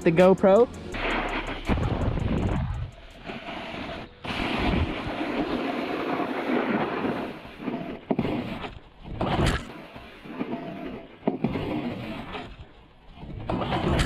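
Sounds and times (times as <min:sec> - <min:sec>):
snowboard scraping over snow: 0:00.2 - 0:14.0
wind on microphone: 0:00.9 - 0:06.0.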